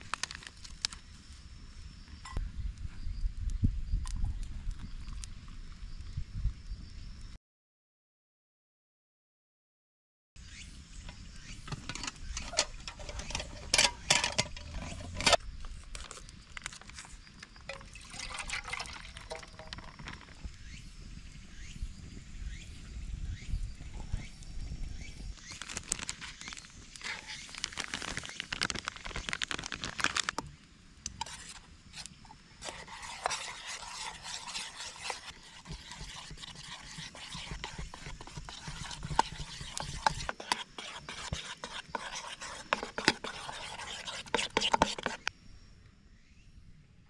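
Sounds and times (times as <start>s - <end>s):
spoon scraping a tin: 11.6s - 15.4s, 17.7s - 20.3s, 27.0s - 28.2s, 31.1s - 45.3s
utensils clinking on metal tin: 11.7s - 15.4s
liquid pouring: 17.7s - 20.1s.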